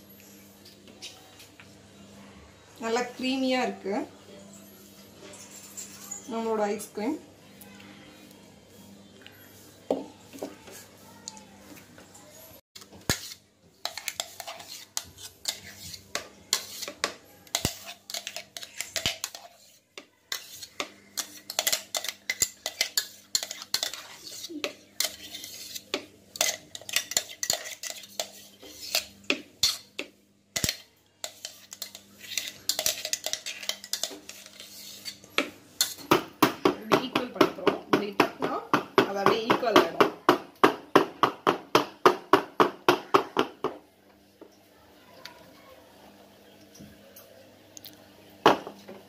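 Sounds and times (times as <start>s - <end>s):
metal spoon scraping a jar: 5.3s - 6.5s, 13.1s - 30.0s, 30.6s - 36.0s.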